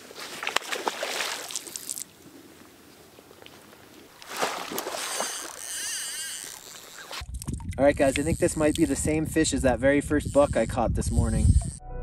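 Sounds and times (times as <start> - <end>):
fish splashing in water: 0.4 - 2.0, 4.2 - 7.2.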